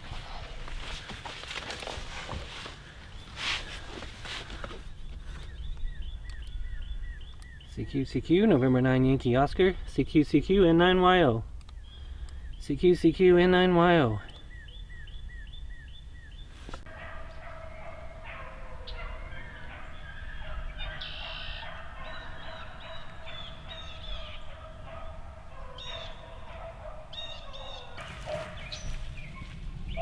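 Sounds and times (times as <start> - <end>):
many birds calling: 0.0 - 8.6, 11.7 - 30.0
wind rumbling on microphone: 27.8 - 30.0.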